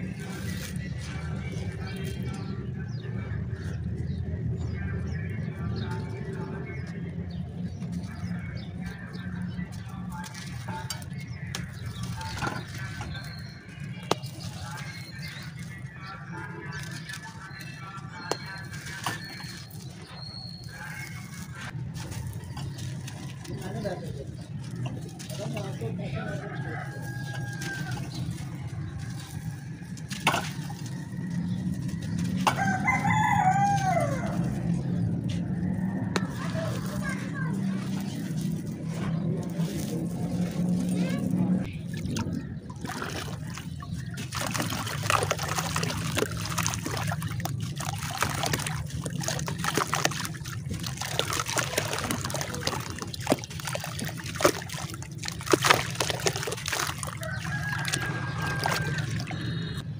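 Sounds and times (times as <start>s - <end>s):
birds calling: 0.0s - 59.9s
rooster crowing: 26.2s - 28.1s, 32.4s - 34.6s, 57.0s - 59.8s
dry clay crumbling: 43.2s - 59.2s.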